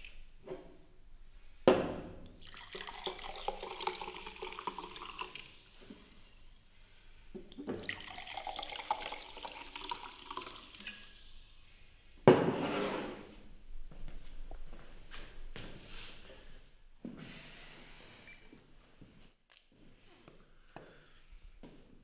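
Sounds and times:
water pouring into glass: 2.4 - 5.8, 7.5 - 11.2.

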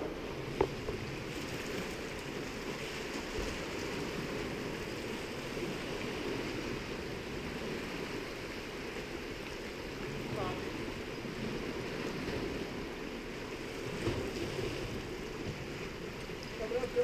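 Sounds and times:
sea surf rushing: 0.0 - 17.0
wind: 0.0 - 17.0.

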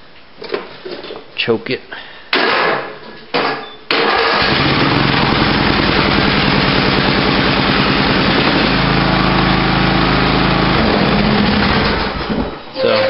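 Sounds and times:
lawn mower engine running: 4.1 - 12.5.

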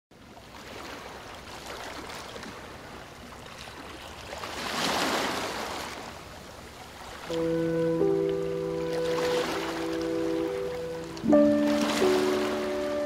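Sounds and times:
ocean surf breaking: 7.2 - 13.0.

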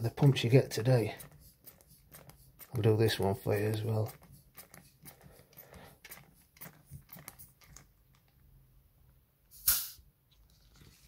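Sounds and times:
air rushing through pump valve: 1.0 - 7.5.

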